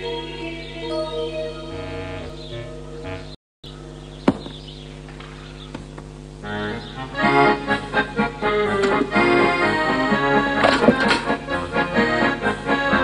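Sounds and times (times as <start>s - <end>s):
background music: 0.0s - 3.4s, 6.6s - 13.0s
sharp knock: 4.2s - 4.7s.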